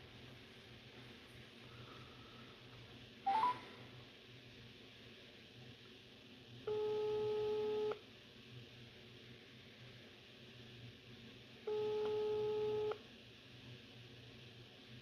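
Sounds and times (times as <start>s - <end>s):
rising three-note beep: 3.3s - 3.6s
phone ringback tone: 3.3s - 3.7s, 6.7s - 7.9s, 11.7s - 13.0s.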